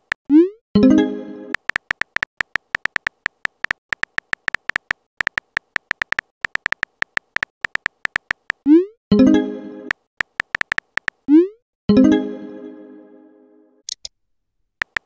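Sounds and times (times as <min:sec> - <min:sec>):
phone keyboard typing clicks: 0:01.6 - 0:08.7, 0:10.2 - 0:11.3.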